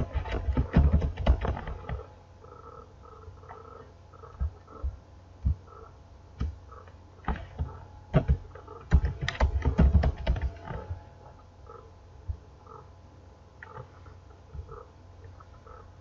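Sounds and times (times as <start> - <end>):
computer keyboard typing: 8.2 - 10.9.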